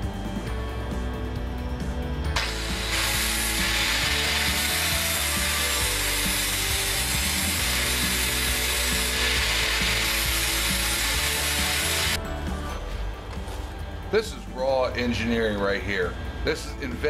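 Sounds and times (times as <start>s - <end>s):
angle grinder grinding steel: 2.4s - 12.2s.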